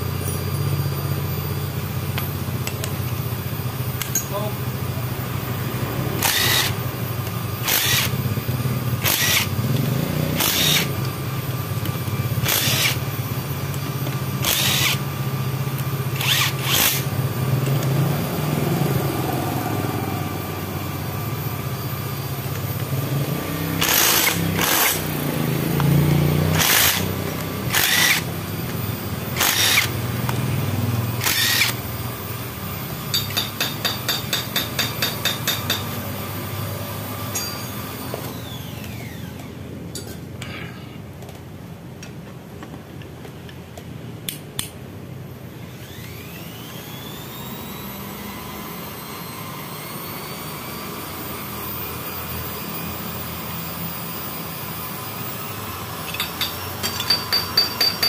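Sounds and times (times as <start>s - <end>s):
steady low hum: 0.0s - 33.6s
hand tool metallic clicks: 56.0s - 58.0s.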